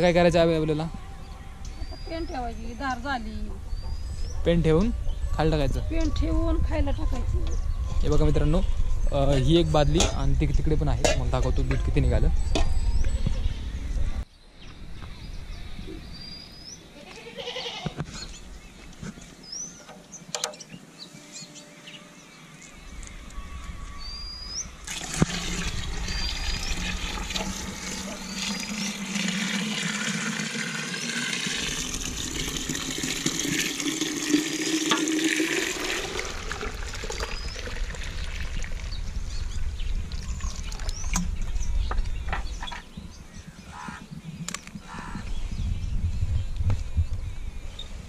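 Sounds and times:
milk pouring and splashing: 24.8s - 38.9s, 40.1s - 41.2s.

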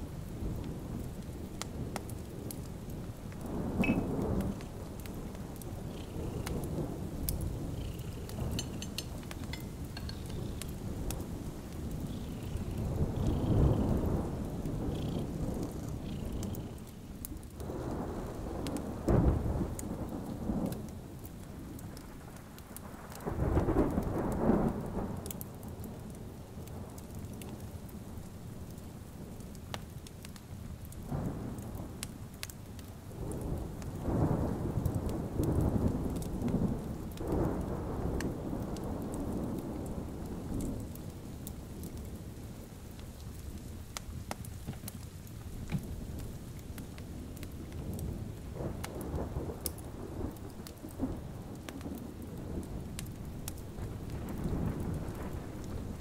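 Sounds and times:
steady rain falling: 0.0s - 56.0s
thunder rolling: 3.4s - 16.8s, 47.6s - 56.0s.

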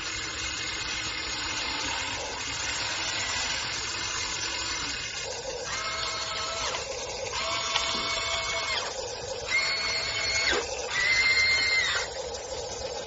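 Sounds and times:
small electric motors whining: 1.4s - 5.0s, 5.6s - 12.2s.

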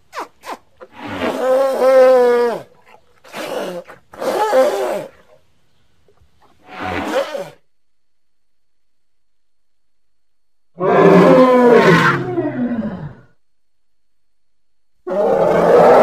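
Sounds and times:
creature bellowing: 10.8s - 13.3s, 15.1s - 16.0s.

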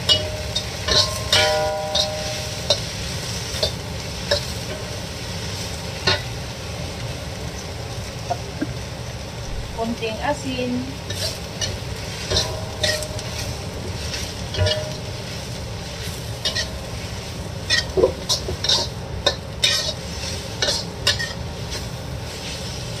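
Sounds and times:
metal spatula clinking on wok: 0.0s - 2.9s, 11.1s - 13.4s, 14.5s - 15.1s, 16.4s - 16.8s, 20.6s - 21.4s
steady sizzle: 0.0s - 23.0s.

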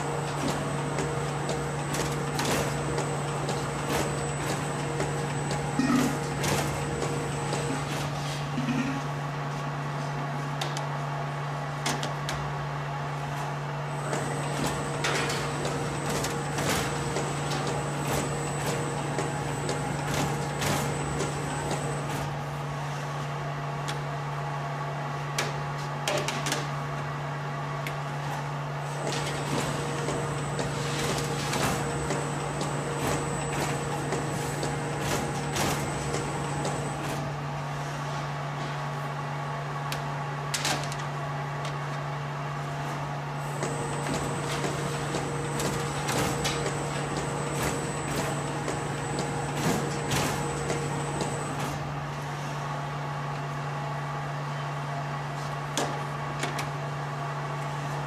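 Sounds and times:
machine humming: 0.0s - 8.0s, 13.9s - 22.3s, 29.0s - 37.2s, 43.4s - 51.8s.

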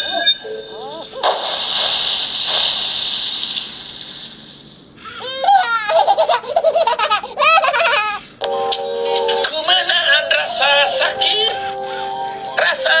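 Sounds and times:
hissing noise: 1.0s - 4.9s, 8.5s - 13.0s.

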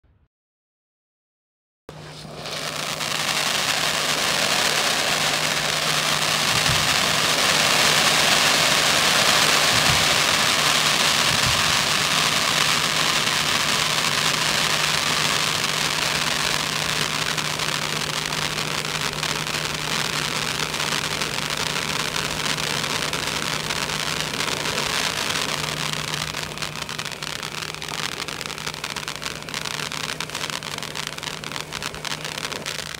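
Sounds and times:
fountain fireworks hissing: 1.9s - 32.9s.

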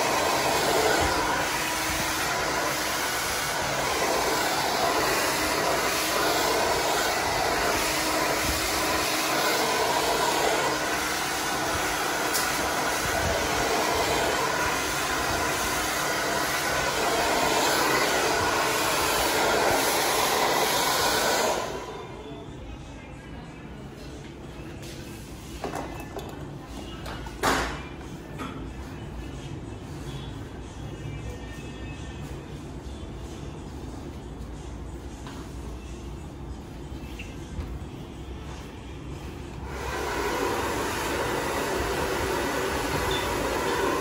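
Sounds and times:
hair dryer blowing: 0.0s - 22.2s, 39.5s - 44.0s.

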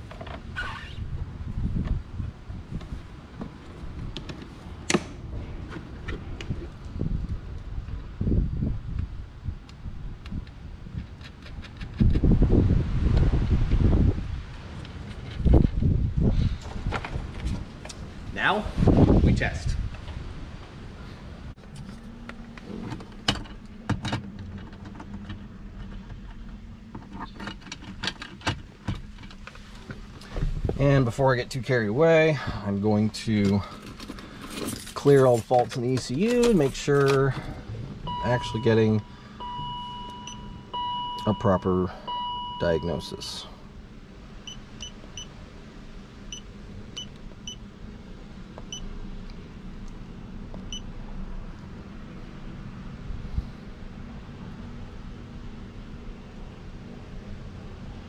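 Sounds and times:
short high beeps: 38.1s - 43.0s.

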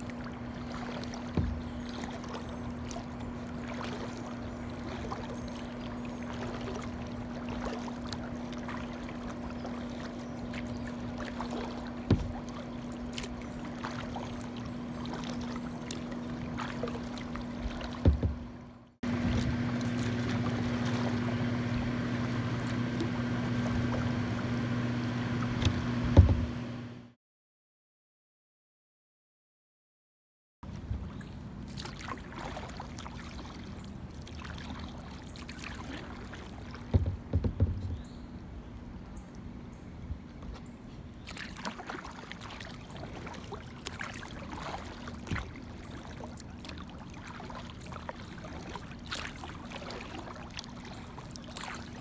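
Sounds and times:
paddle knocking against hull: 0.0s - 24.7s, 25.3s - 26.7s, 35.8s - 38.2s, 43.2s - 47.7s
paddle strokes in water: 0.0s - 26.9s, 30.6s - 52.0s
steady low hum: 0.0s - 27.2s.

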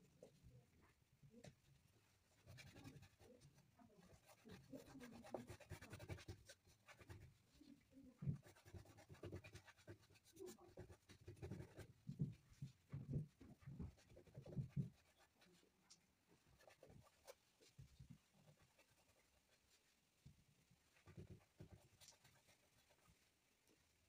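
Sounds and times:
painting tool rubbing on wood: 2.4s - 7.5s.

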